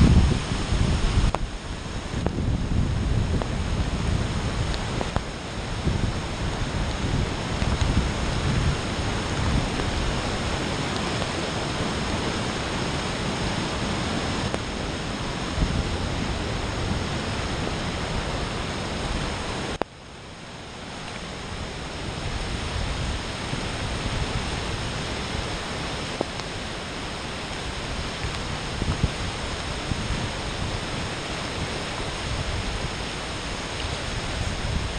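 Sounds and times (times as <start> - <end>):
heavy rain: 0.0 - 34.9
rushing floodwater: 0.0 - 34.9.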